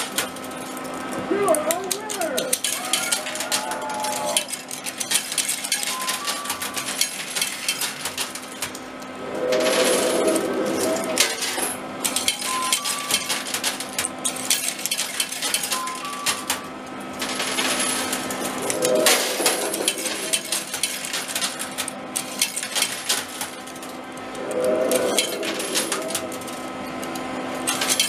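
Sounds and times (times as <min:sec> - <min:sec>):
coins dropping clicks: 0:01.8 - 0:08.7, 0:11.4 - 0:24.0, 0:27.7 - 0:28.0
coins clinking and sliding: 0:02.5 - 0:08.7, 0:09.4 - 0:16.6, 0:17.2 - 0:28.0.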